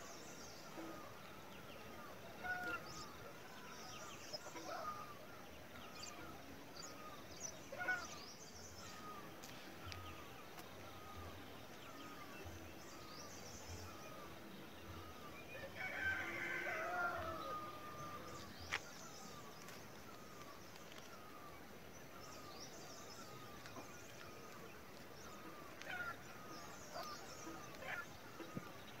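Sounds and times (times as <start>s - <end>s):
small birds chirping: 0.0s - 29.0s
rooster crowing: 15.7s - 17.9s.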